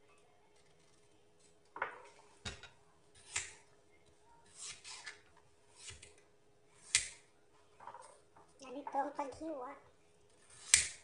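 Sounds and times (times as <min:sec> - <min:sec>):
knife scraping and cutting mango: 0:04.5 - 0:06.2.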